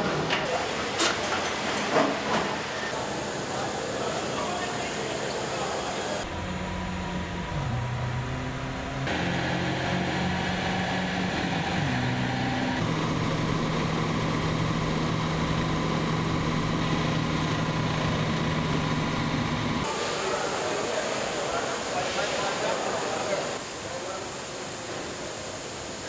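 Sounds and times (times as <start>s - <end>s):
hum from rollers and tyres: 6.2s - 19.9s
van engine running at speed: 6.2s - 19.9s.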